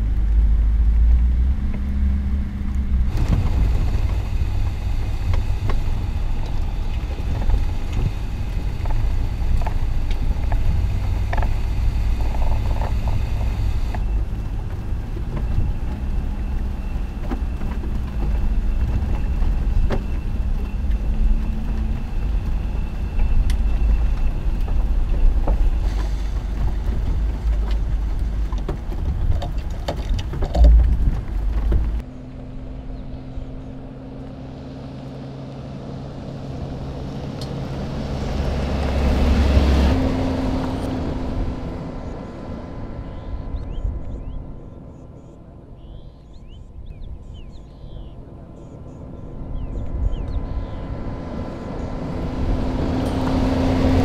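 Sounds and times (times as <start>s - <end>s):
heavy low engine rumble: 0.0s - 54.0s
ticks of grit and stones: 2.7s - 32.0s.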